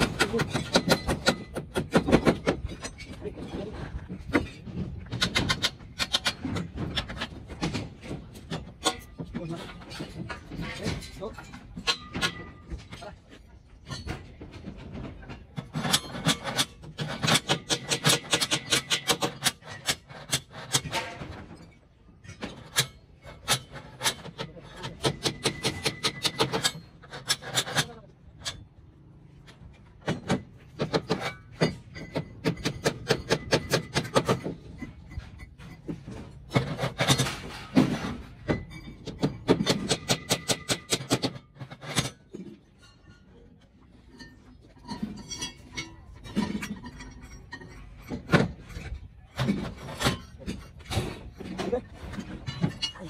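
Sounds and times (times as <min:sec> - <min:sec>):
hammer driving nails into timber: 0:04.3 - 0:09.1, 0:22.4 - 0:28.6.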